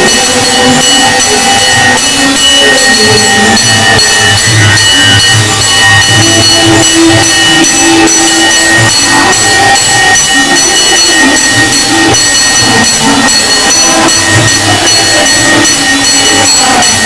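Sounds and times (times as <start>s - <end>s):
bells ringing: 0.0s - 17.0s.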